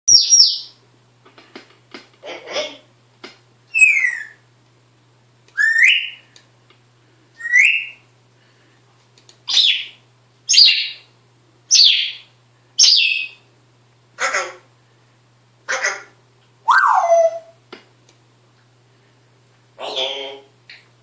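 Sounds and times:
parrot whistling calls: 3.7 - 4.4, 5.5 - 6.2, 7.4 - 8.0, 9.5 - 11.0, 16.6 - 17.6.

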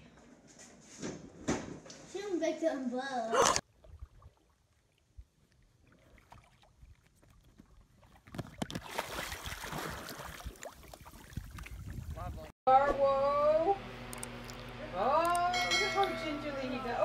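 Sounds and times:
dog splashing while paddling: 8.1 - 11.6.

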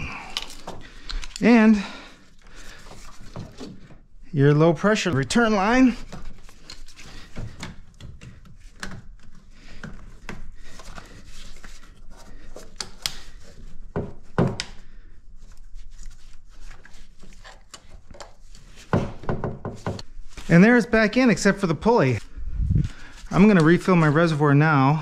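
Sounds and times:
hose and clamp clicks and rubbing: 0.3 - 1.5.

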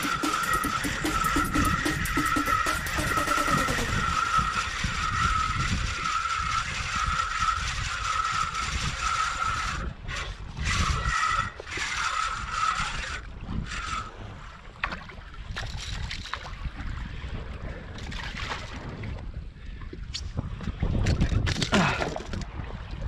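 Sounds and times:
fishing reel gears whirring: 0.0 - 14.7.

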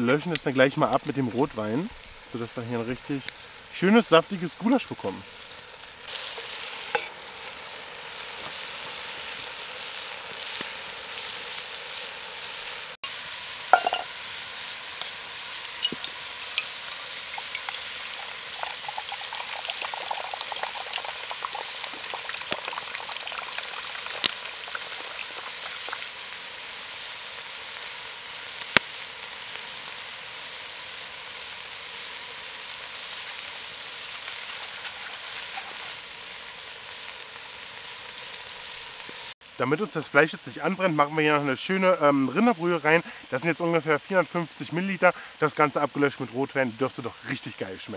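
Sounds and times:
meat and onions sizzling: 0.0 - 47.9
water poured into metal mug: 15.8 - 26.0.

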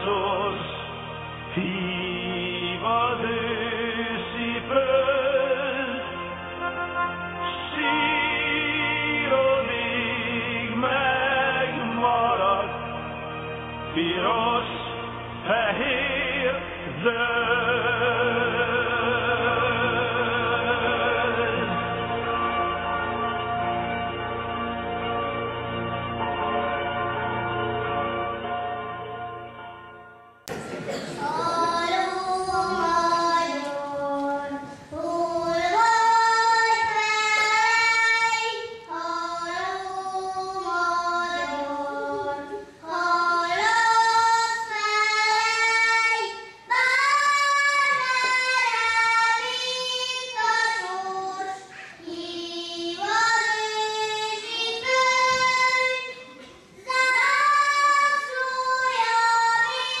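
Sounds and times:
children singing: 30.5 - 60.0.

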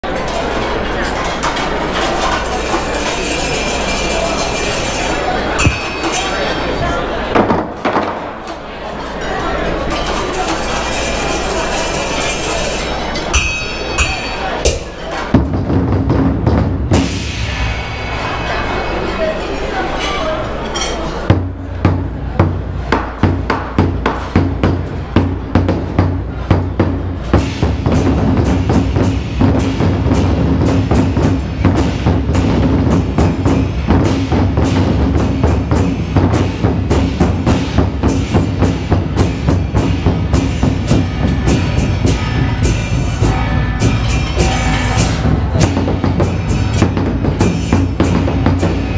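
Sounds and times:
barrel drums beating: 5.6 - 8.3, 13.4 - 18.4, 21.3 - 48.9
sustained low tones: 40.7 - 47.4.

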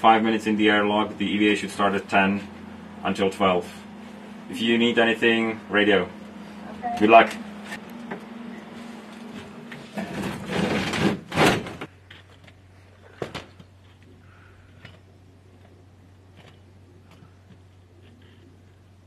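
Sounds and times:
faint low hum: 0.0 - 19.0
door scraping shut: 9.2 - 11.9.

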